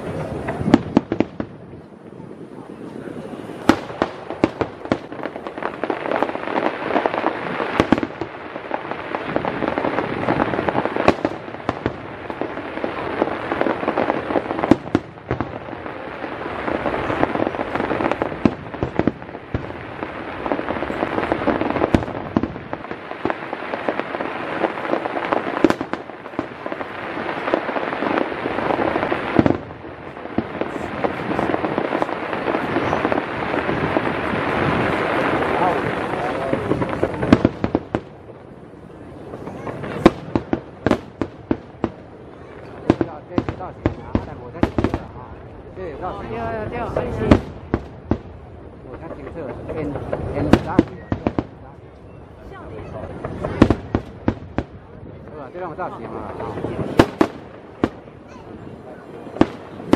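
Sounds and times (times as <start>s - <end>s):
crackling of burning stars: 0.0s - 59.9s.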